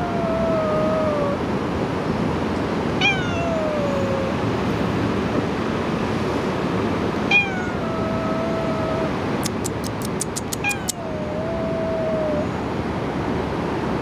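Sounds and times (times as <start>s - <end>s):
cat meowing: 0.0s - 1.4s, 3.0s - 4.4s, 7.3s - 12.5s.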